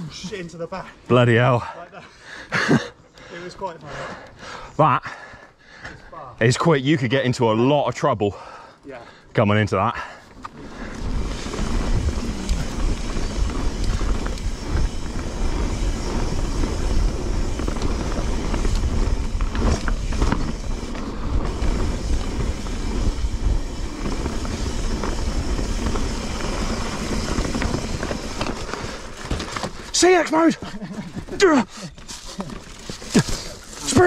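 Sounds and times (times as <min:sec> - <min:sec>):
bicycle tyre and frame noise: 0:09.9 - 0:34.0
wind buffeting microphone: 0:10.7 - 0:29.1
bike knocking over bumps: 0:11.0 - 0:30.0.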